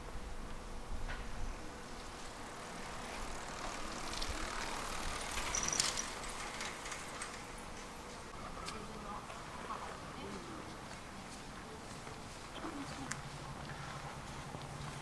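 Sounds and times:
vehicle passing close by: 0:02.2 - 0:06.9.

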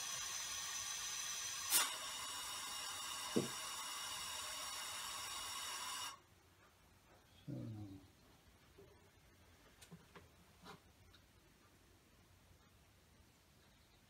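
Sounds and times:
compressed air hissing with whistling: 0:00.0 - 0:06.2.

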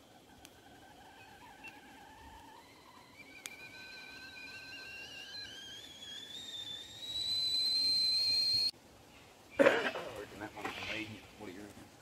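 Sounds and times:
high whistle rising in pitch: 0:01.2 - 0:08.7.

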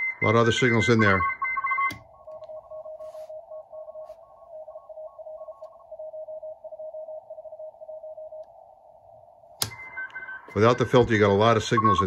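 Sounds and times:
morse code tone: 0:00.0 - 0:08.4.

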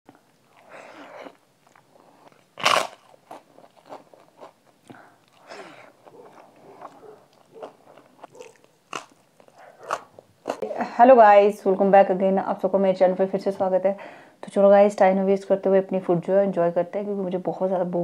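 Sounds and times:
chewing with small crunches: 0:00.1 - 0:10.8
loud crunch of biting: 0:00.4 - 0:10.6.

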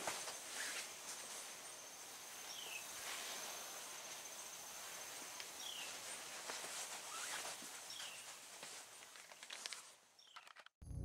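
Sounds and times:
cloth rubbing on car paint: 0:00.0 - 0:01.6, 0:04.8 - 0:09.2.

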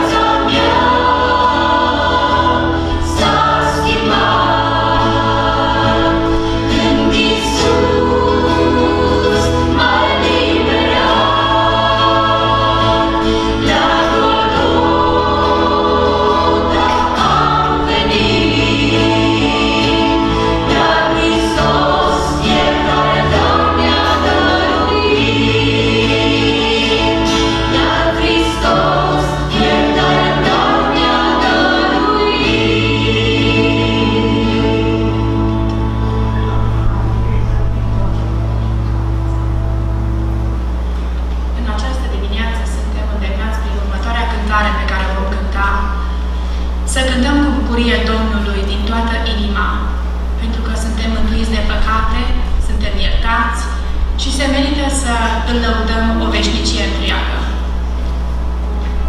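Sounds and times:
group singing gospel song: 0:00.0 - 0:37.4
electric bass guitar: 0:00.0 - 0:41.6
acoustic guitar: 0:00.0 - 0:42.2
keyboard: 0:00.0 - 0:59.0.

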